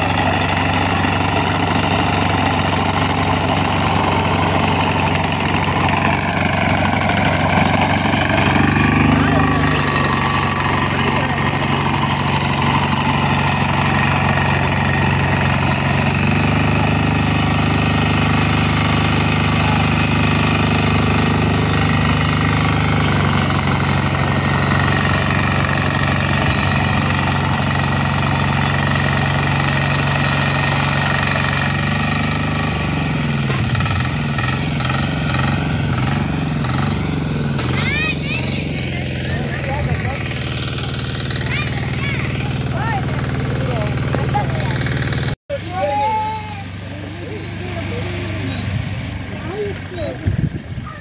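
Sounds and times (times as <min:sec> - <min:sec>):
small engine running: 0:00.0 - 0:51.0.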